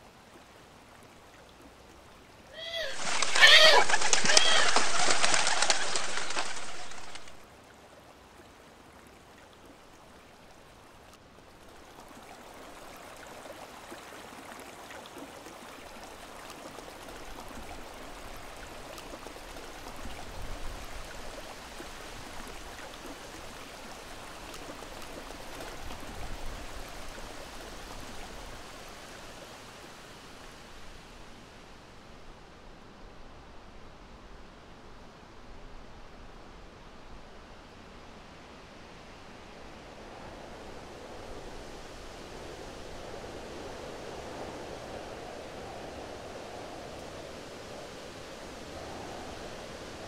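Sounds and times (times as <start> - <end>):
river water rushing: 0.0 - 32.1.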